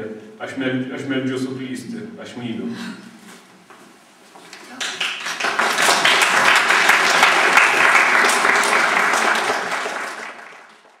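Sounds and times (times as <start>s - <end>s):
audience applauding: 4.6s - 11.0s.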